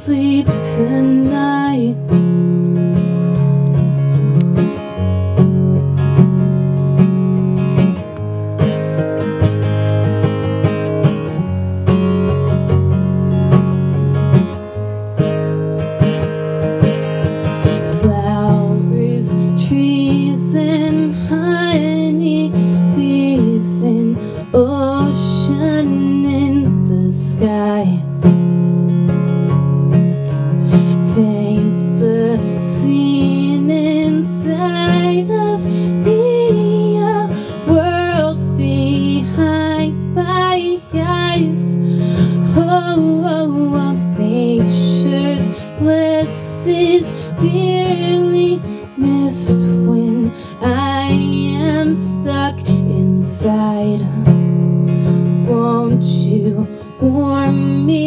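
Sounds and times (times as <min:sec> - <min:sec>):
woman singing with vibrato: 0:00.0 - 0:02.2, 0:17.7 - 0:28.3, 0:30.7 - 0:54.5, 0:55.2 - 0:58.0
acoustic guitar strumming: 0:00.0 - 0:58.0.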